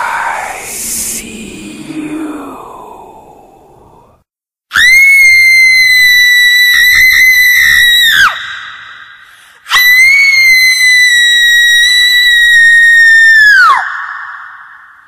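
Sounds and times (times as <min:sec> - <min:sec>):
scream echo: 0:00.0 - 0:04.2
shrill high-pitched screaming: 0:04.7 - 0:09.0.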